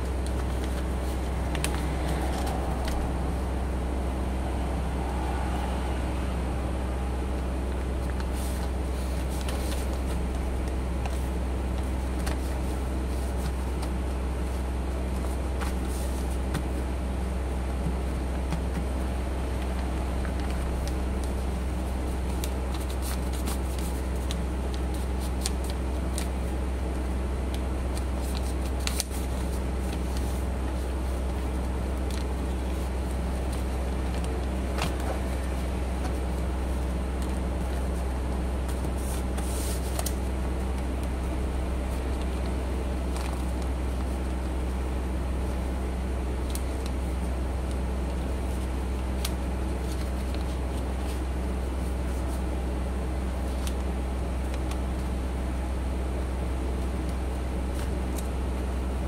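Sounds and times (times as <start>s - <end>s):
paper rustling while folded: 0.0s - 3.4s, 7.8s - 55.4s, 56.2s - 58.8s
low hum: 0.0s - 52.2s.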